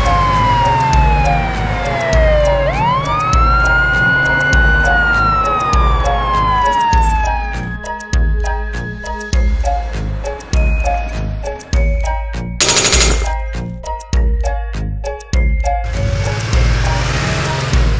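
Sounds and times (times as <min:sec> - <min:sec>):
cartoon police siren wailing: 0:00.0 - 0:07.6
background music with beat: 0:00.0 - 0:15.8.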